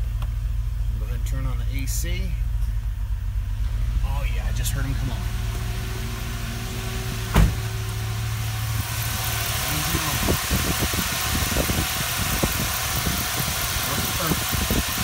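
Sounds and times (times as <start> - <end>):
car engine idling: 0.0 - 15.0
electric radiator fans rushing: 2.6 - 15.0
thump: 7.2 - 7.8.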